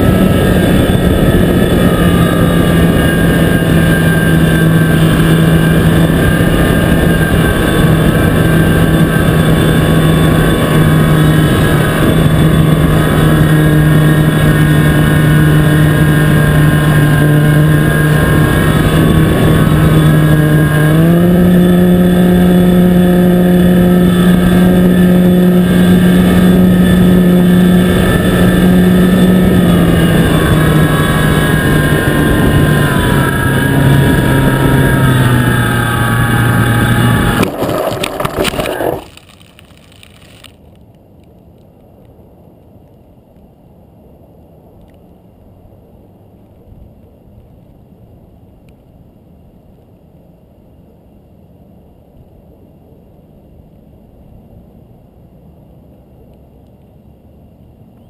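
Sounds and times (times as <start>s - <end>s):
model plane motor buzzing: 0.0s - 40.7s.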